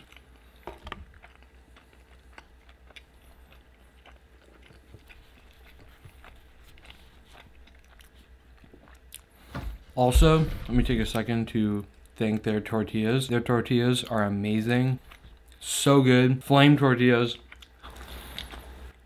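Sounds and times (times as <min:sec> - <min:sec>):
man chewing food: 0:00.0 - 0:12.6, 0:14.0 - 0:15.7, 0:17.4 - 0:19.0.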